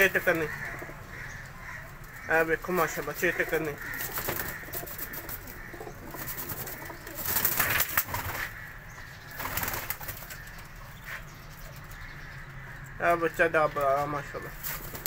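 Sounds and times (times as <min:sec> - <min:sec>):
pigeons cooing: 0:00.0 - 0:12.8
noisy rustles: 0:01.9 - 0:08.7.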